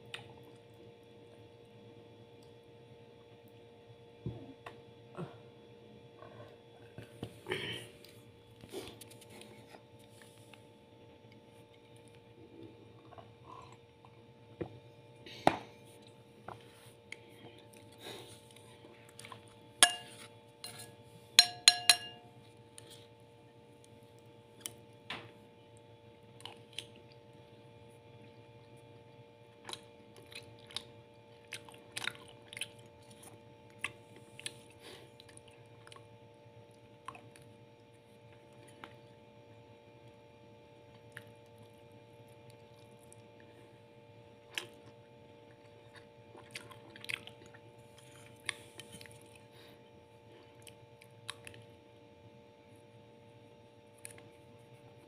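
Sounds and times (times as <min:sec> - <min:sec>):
faint steady hum: 0:00.0 - 0:55.0
soft chewing: 0:06.0 - 0:15.0, 0:15.7 - 0:25.0, 0:25.7 - 0:52.0, 0:53.8 - 0:55.0
spoon clinking on ceramic plate: 0:19.8 - 0:22.4.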